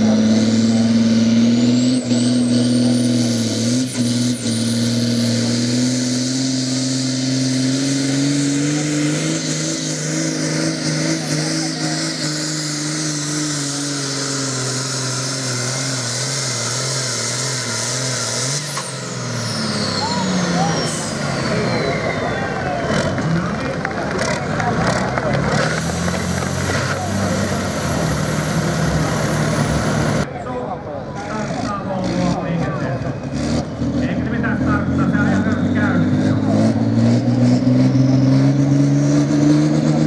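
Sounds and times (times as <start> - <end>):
vehicle engine running hard: 0.0 - 40.0.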